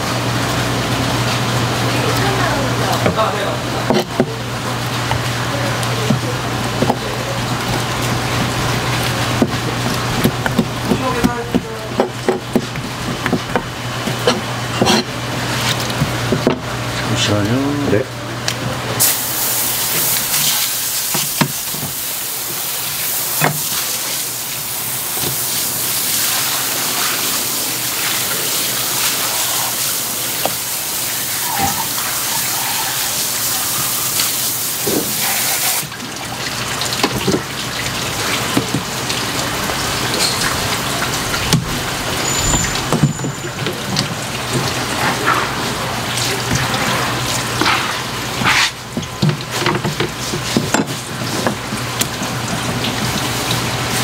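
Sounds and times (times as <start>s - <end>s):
water running from hose: 0.0s - 18.1s, 18.9s - 54.0s.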